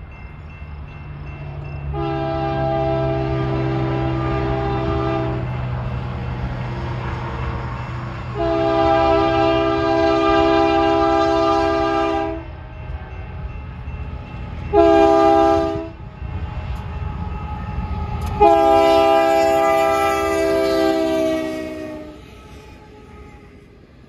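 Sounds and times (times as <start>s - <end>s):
rolling train rumble: 0.0s - 24.0s
locomotive air horn blasts: 1.9s - 5.6s, 8.3s - 12.5s, 14.7s - 16.0s, 18.3s - 23.4s.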